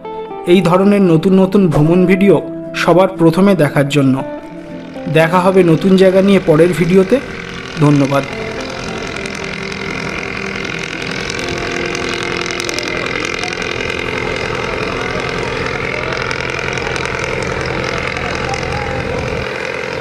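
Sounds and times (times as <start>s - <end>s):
boat engine droning: 2.8s - 20.0s.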